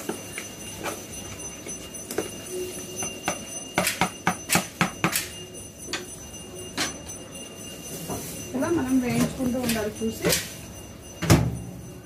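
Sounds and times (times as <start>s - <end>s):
utensils knocking on bowl: 3.0s - 6.1s.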